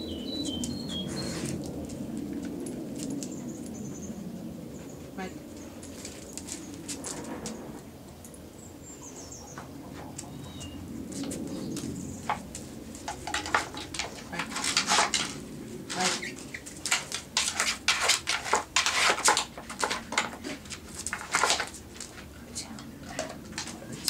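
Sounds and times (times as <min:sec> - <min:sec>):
wooden knocks and clatter: 0:12.2 - 0:22.4.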